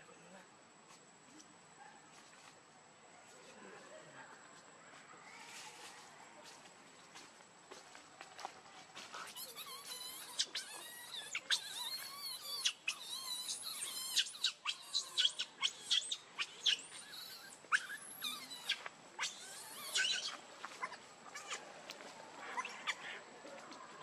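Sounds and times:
baby monkey squealing: 9.2s - 21.6s, 22.4s - 23.2s.

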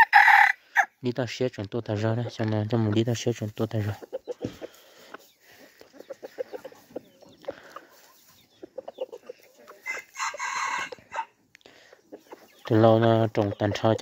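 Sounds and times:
rooster crowing: 0.0s - 0.9s, 9.8s - 11.3s
chickens clucking: 0.0s - 14.0s.

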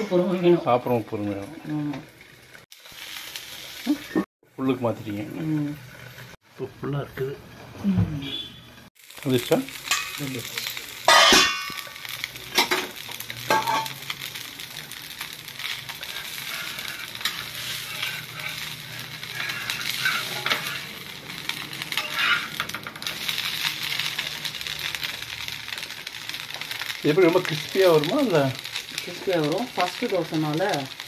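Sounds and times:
pancake sizzling on griddle: 0.0s - 31.0s
steel spatula scraping: 15.6s - 24.3s.

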